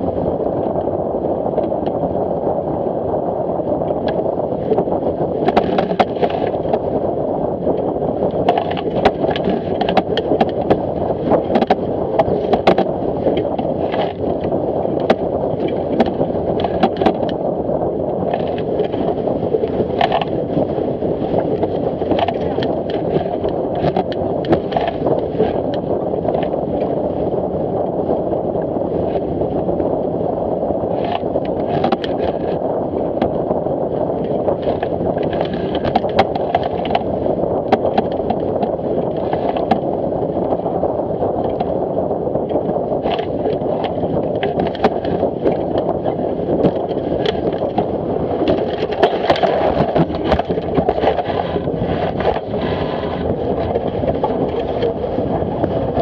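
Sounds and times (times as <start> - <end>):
water rushing along hull: 0.0 - 56.0
waves splashing against boat: 0.0 - 56.0.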